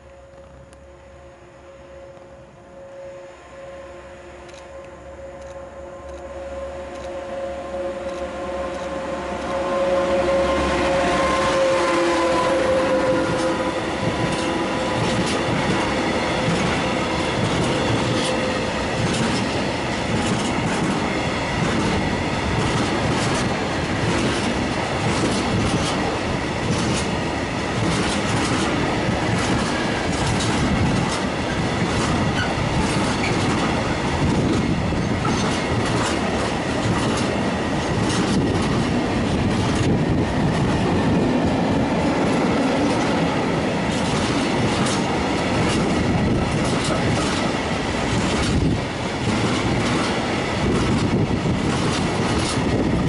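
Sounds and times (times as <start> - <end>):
train wheels rumbling on rail: 4.4 - 53.0
wheels clicking over rail joints: 14.1 - 41.6, 42.3 - 53.0.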